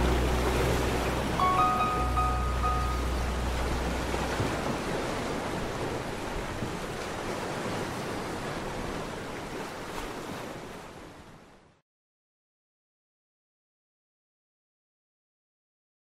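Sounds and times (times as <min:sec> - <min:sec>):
low bass music note: 0:00.0 - 0:04.6
ocean waves washing: 0:00.0 - 0:11.8.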